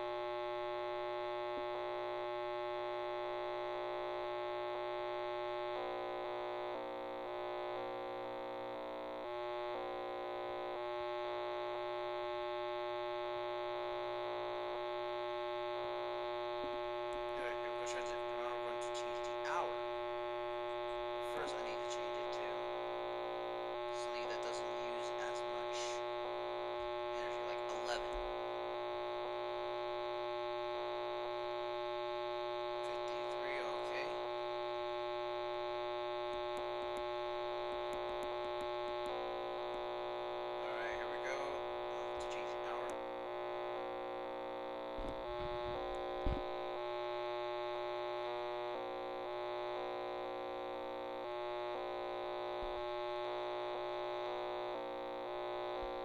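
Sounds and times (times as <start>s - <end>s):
glitchy chirps and crackles: 17.0s - 28.2s, 32.7s - 47.0s
buzzy electronic drone: 32.0s - 56.0s.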